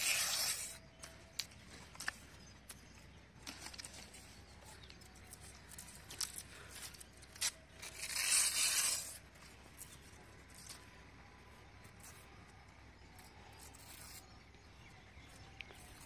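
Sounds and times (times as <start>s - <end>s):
palm leaf tearing rip: 0.0s - 0.8s, 7.3s - 9.2s
palm leaf crackling and rustling: 0.0s - 10.9s.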